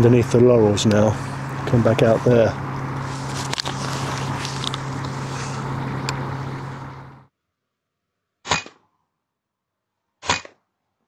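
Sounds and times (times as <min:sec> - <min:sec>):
low background hum: 0:00.0 - 0:07.3
air rifle shots: 0:08.5 - 0:08.8, 0:10.2 - 0:10.6.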